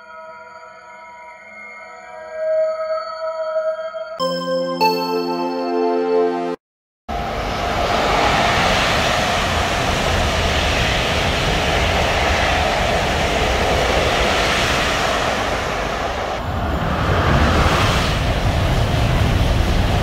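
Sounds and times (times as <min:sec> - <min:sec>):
high-speed train passing: 0:07.1 - 0:20.0.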